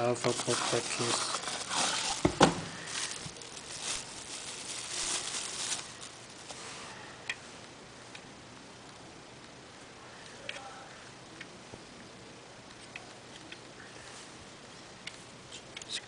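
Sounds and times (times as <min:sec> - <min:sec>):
plastic packaging crinkling: 0:00.0 - 0:06.7.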